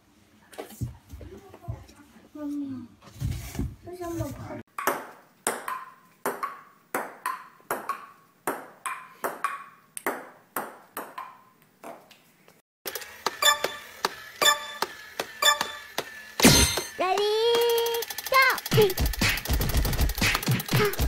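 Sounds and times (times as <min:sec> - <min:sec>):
ping-pong ball bouncing: 0:04.7 - 0:12.0, 0:13.4 - 0:13.8, 0:14.4 - 0:16.1.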